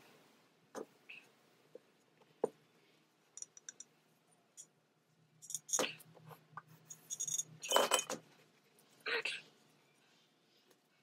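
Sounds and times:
metal clinks and scrapes: 5.4s - 6.0s, 6.8s - 8.2s.

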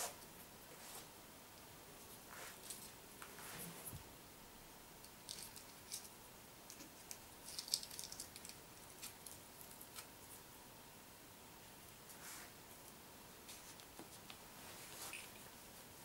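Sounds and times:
light clicks and crinkles: 2.4s - 4.0s, 5.0s - 10.4s, 12.1s - 15.5s.

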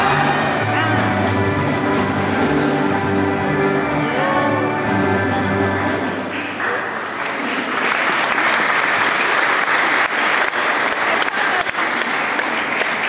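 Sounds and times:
crowd applauding: 5.7s - 13.0s.

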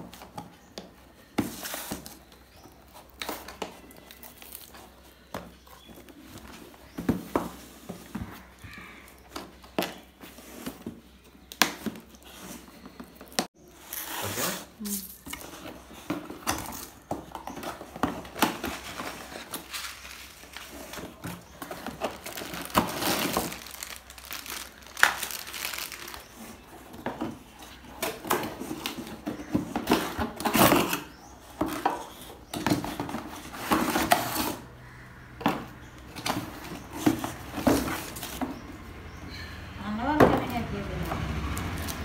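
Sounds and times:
plastic bags crinkling: 17.8s - 27.0s.

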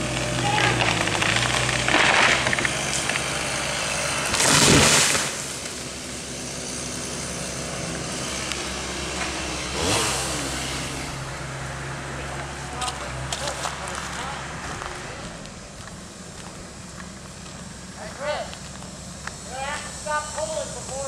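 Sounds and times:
branches breaking: 0.0s - 5.8s
tree falling and crashing: 0.0s - 5.8s
small engine running: 0.0s - 21.0s.

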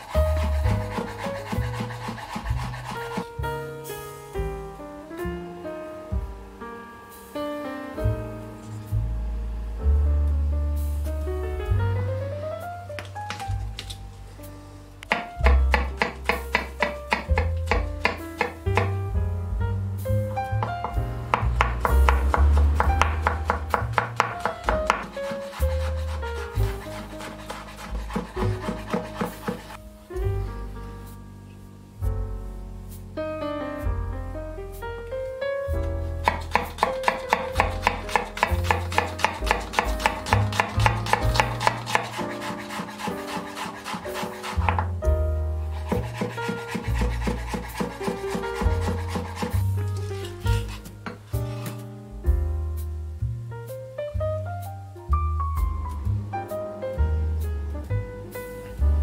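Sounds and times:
knife chopping on wooden board: 0.0s - 3.3s, 15.1s - 18.9s, 21.3s - 29.8s, 36.2s - 45.0s, 45.7s - 51.8s
background music with bass: 0.0s - 59.0s.

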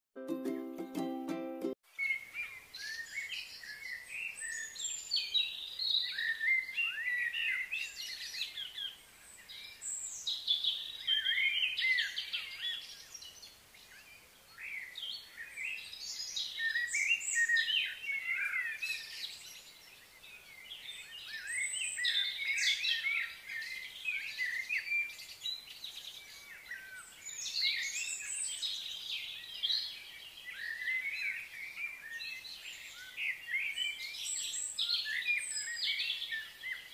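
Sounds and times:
birds chirping and singing: 2.0s - 36.9s.

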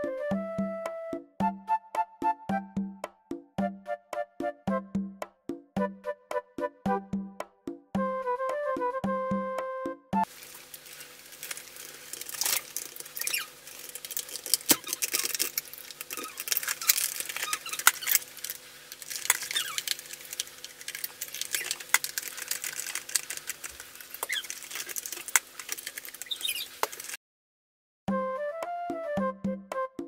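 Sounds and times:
plastic parts clicking and clattering: 11.4s - 27.2s
high squeaky chirps: 12.5s - 13.6s, 14.6s - 15.4s, 16.1s - 18.3s, 19.4s - 20.0s, 21.4s - 21.9s, 24.2s - 24.8s, 26.2s - 26.8s.

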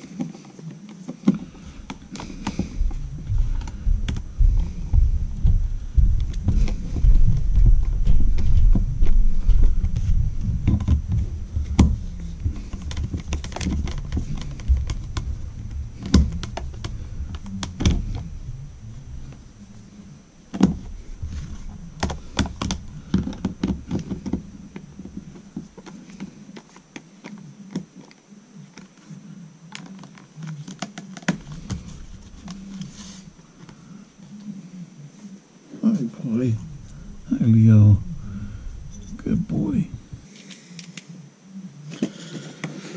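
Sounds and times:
low rumble: 1.5s - 25.8s, 36.3s - 40.3s.

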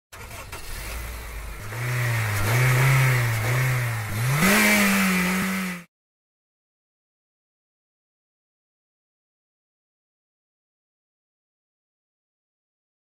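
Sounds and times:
car engine revving: 0.1s - 5.9s.

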